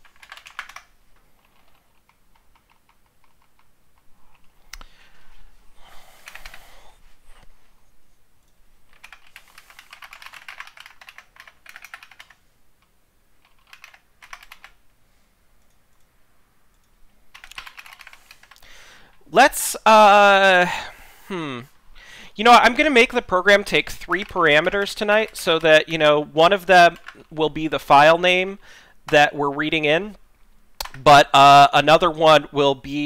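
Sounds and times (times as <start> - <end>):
typing on a computer keyboard: 0.0 - 4.5, 6.2 - 6.6, 8.9 - 12.4, 13.4 - 14.8, 16.7 - 18.6, 26.9 - 27.3.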